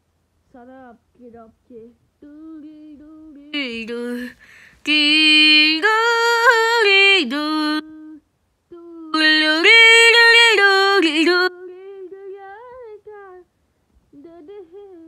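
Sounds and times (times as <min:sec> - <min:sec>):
high voice singing: 0:03.5 - 0:08.2, 0:08.8 - 0:11.6.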